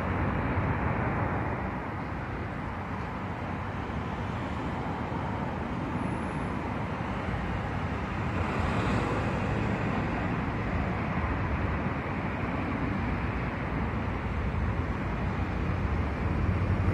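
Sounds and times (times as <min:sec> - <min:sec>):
road traffic rumble: 0:00.0 - 0:16.9.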